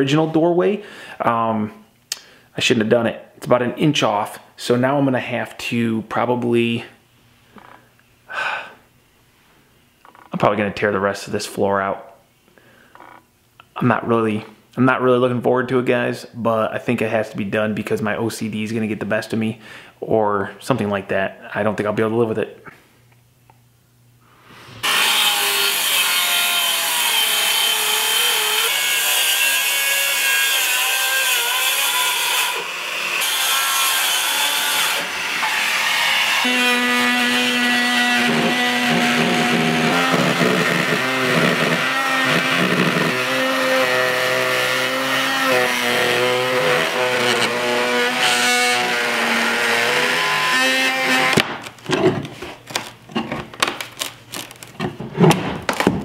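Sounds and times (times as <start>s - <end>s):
power saw cutting wood: 24.8s - 51.6s.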